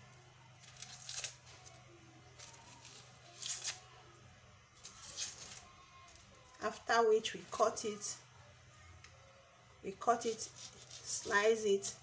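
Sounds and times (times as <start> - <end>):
onion skin crackling and rustling: 0.1 - 4.2, 4.8 - 8.0, 10.2 - 12.0.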